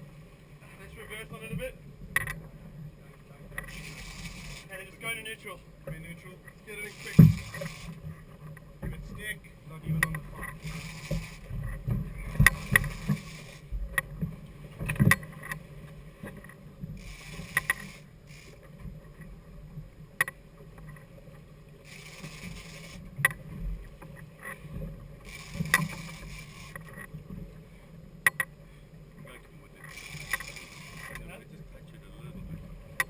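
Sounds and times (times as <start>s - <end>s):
outboard motors running: 0.0s - 33.0s
bursts of hiss: 3.7s - 4.9s, 6.7s - 8.0s, 10.6s - 11.6s, 12.5s - 13.7s, 17.0s - 18.6s, 21.9s - 23.0s.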